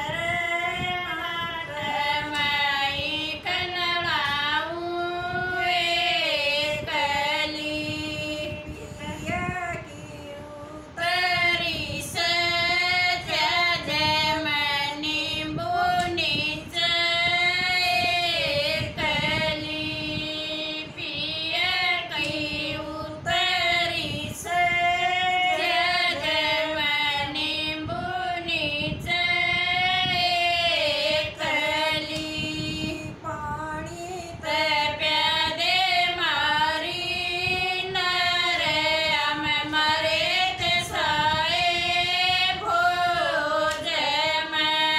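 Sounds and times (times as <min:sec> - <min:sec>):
women singing in unison: 0:00.0 - 0:44.9.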